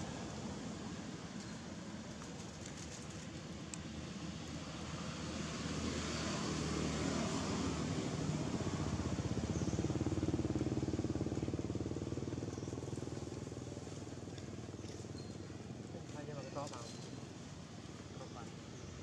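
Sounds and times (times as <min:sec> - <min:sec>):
passing vehicle engine: 0:04.2 - 0:14.2.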